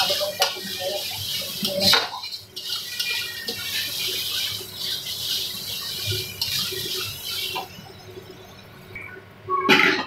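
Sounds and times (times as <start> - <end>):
metal spatula scraping pan: 0.0 - 7.7
spices sizzling in oil: 0.0 - 9.0.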